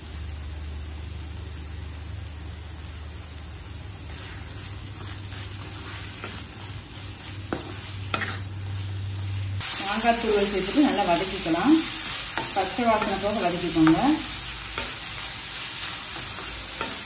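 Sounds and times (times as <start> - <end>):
food sizzling in a pan: 0.0 - 17.0
wooden spatula scraping a pan: 4.1 - 8.5.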